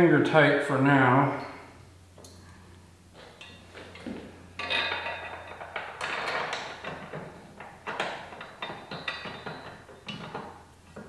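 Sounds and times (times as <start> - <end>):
metal rack clanking and scraping: 3.2 - 11.0.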